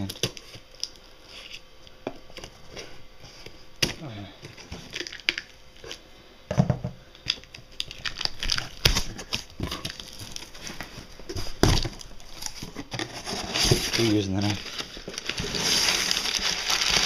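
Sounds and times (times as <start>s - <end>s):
cardboard scraping and tearing: 9.7s - 17.0s.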